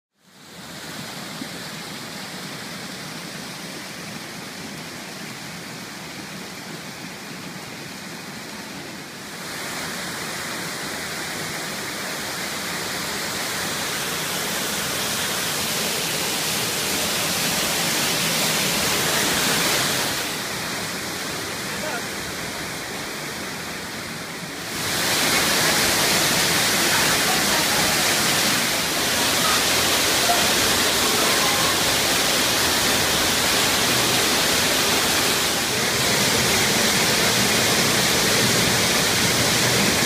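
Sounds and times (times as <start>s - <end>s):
waterfall rushing over rock: 0.2s - 40.0s.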